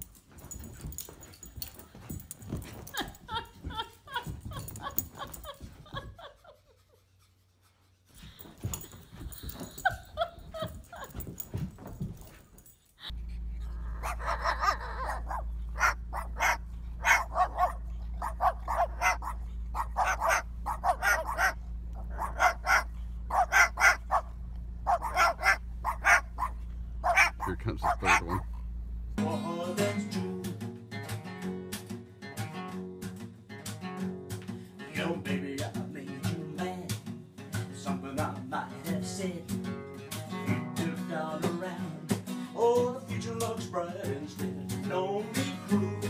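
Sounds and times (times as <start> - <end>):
car engine idling: 13.2 - 29.2
mixed animal sounds: 13.7 - 24.3, 24.9 - 28.5
cockatoo barking: 13.7 - 28.7.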